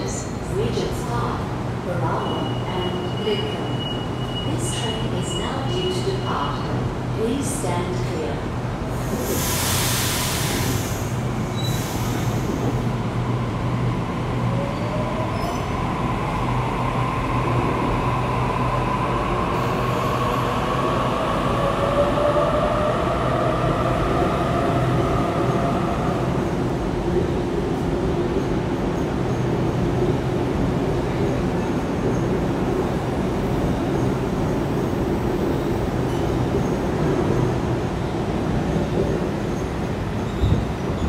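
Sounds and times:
air hiss: 9.0 - 12.6.

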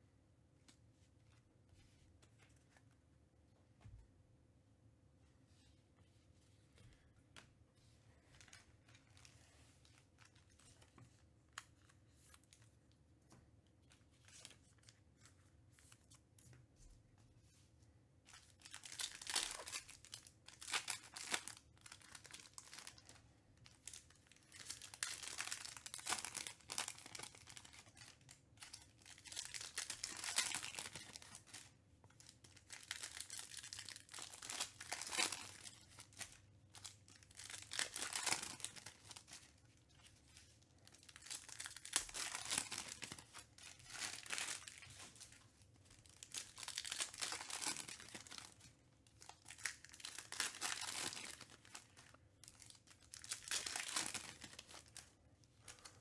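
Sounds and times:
foil packs crinkling: 40.9 - 45.3, 46.1 - 55.1.

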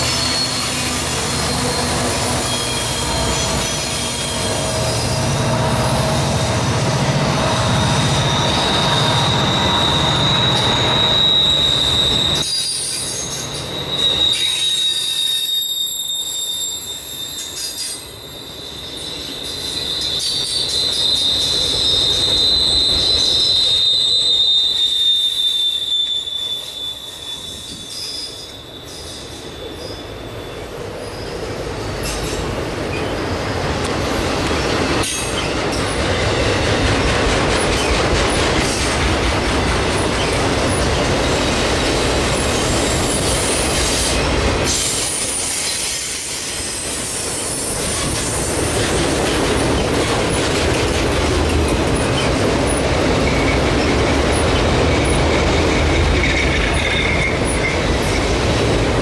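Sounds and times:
high wheel squeal: 0.0 - 33.6, 51.5 - 58.4
freight train wheels rumbling: 0.0 - 59.0.

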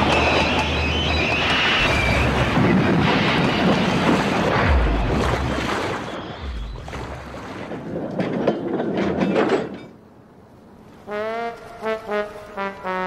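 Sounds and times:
rushing crash and splash: 0.0 - 9.2.

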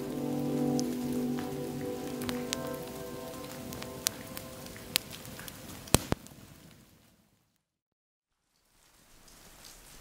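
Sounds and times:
slow sustained chords music: 0.0 - 5.3
campfire crackling: 0.0 - 7.4
sharp fire pops: 3.7 - 6.8.

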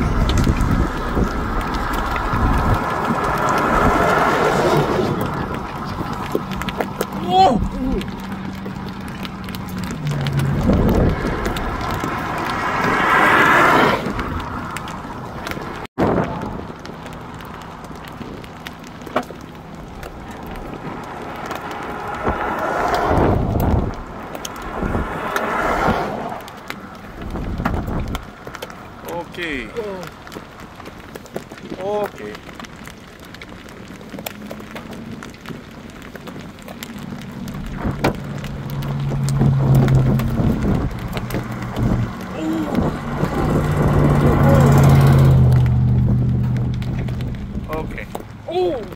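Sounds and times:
wind on microphone: 0.0 - 17.1, 19.9 - 28.4, 37.5 - 47.8
truck engine rumble: 0.0 - 48.9
tyres hissing on wet road: 0.0 - 48.9.

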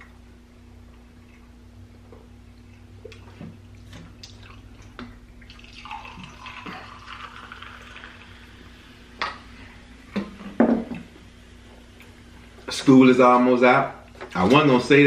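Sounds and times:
soda pouring and fizzing: 5.4 - 9.2.

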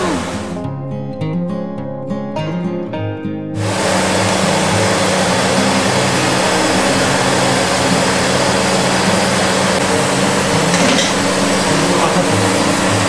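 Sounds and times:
gas burner rushing: 3.6 - 13.0
hot oil bubbling: 3.6 - 13.0.

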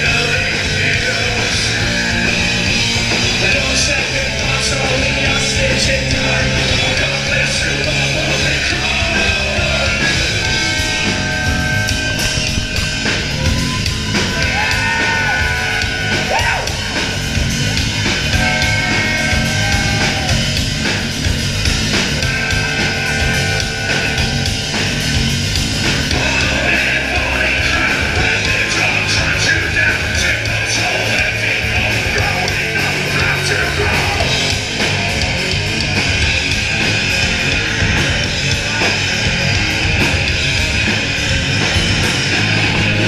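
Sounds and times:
vocalist yelling and singing: 0.0 - 10.8, 13.4 - 17.1, 18.4 - 20.7, 26.1 - 34.7
live rock band playing: 0.0 - 43.0.

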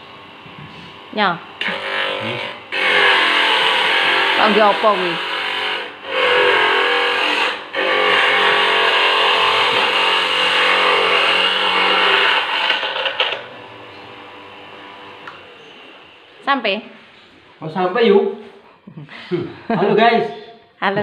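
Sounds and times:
electric grater grinding coconut: 1.6 - 15.6.

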